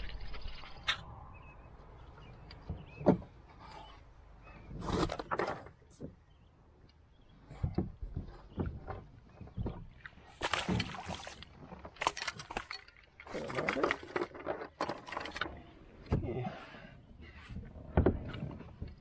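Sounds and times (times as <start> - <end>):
fish thrashing and splashing: 10.2 - 15.6.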